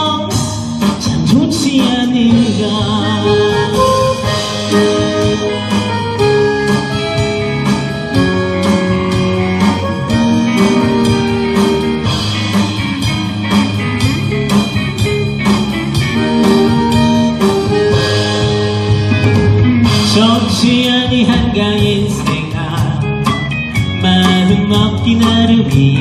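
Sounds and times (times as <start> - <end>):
person singing: 0.0 - 6.8, 19.3 - 26.0
bass: 0.0 - 26.0
drum kit beat: 0.0 - 26.0
guitars: 0.0 - 26.0.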